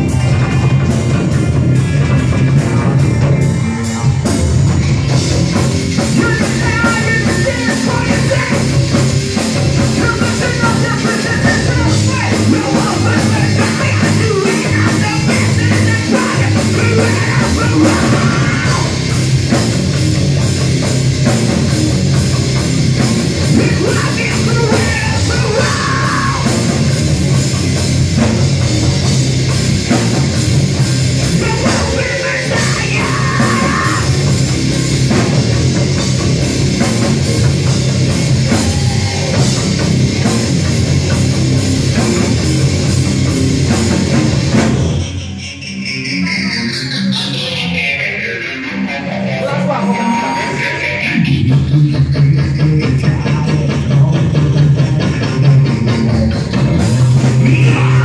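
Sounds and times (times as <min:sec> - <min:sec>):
drum kit beat: 0:00.0 - 0:45.4, 0:50.0 - 0:58.0
bass guitar: 0:00.0 - 0:58.0
electric guitars: 0:00.0 - 0:58.0
person yelling vocals: 0:10.0 - 0:19.0, 0:23.5 - 0:26.6, 0:31.4 - 0:34.2.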